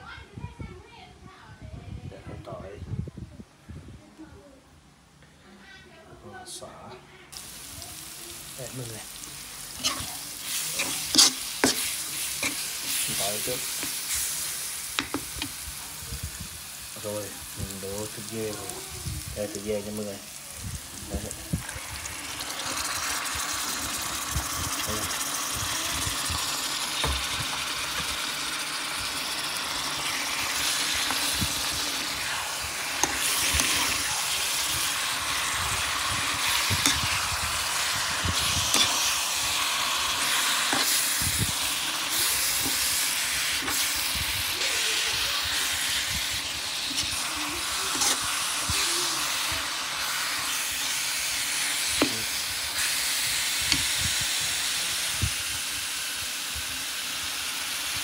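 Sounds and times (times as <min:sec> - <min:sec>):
meat sizzling in a pan: 0:07.3 - 0:58.0
metal spatula scraping pan: 0:09.7 - 0:14.4, 0:47.9 - 0:48.4.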